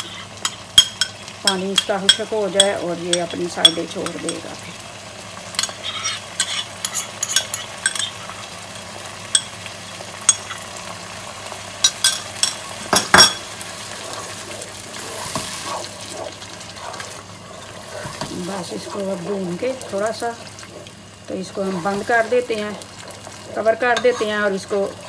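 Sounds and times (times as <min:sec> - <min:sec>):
wooden spoon stirring in pan: 0:05.5 - 0:25.0.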